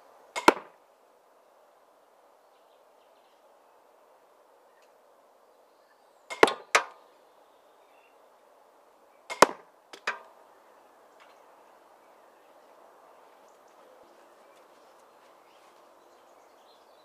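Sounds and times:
crossbow shots snapping: 0:00.4 - 0:00.7, 0:06.3 - 0:07.0, 0:09.3 - 0:10.3.

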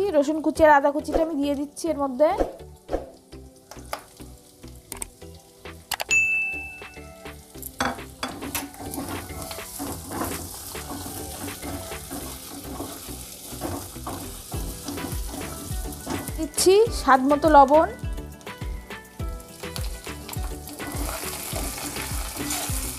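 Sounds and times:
vegetables sizzling in oil: 0:00.0 - 0:22.9
spatula scraping metal pan: 0:07.9 - 0:16.3, 0:20.8 - 0:22.9.

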